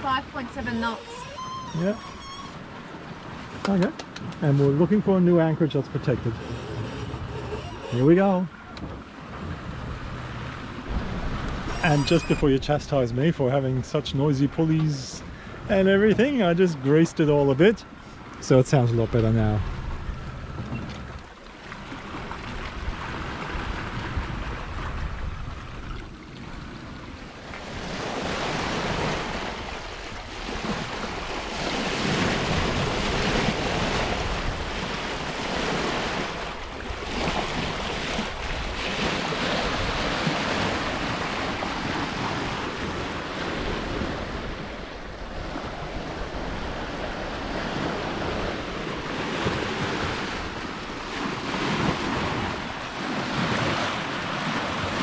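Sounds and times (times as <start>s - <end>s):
water rushing along boat hull: 0.0s - 55.0s
wind buffeting microphone: 6.1s - 13.2s, 19.0s - 55.0s.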